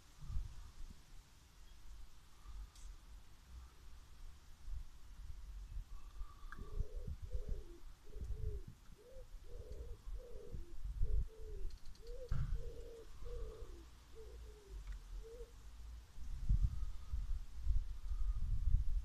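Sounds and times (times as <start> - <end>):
pigeon cooing: 6.0 - 15.6.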